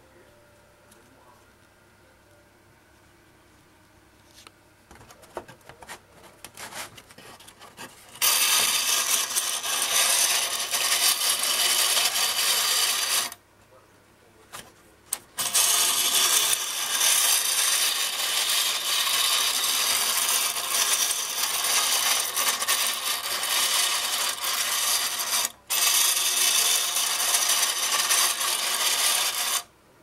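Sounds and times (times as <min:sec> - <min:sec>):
clockwork spring whirring: 0:08.2 - 0:13.4, 0:15.4 - 0:29.7
tin toy train rattling on track: 0:08.2 - 0:13.4, 0:15.4 - 0:29.7.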